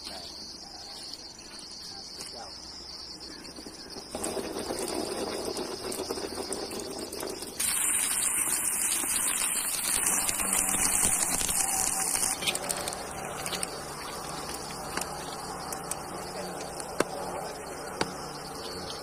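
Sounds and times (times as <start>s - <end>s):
thermite burning with rushing hiss: 4.0s - 19.0s.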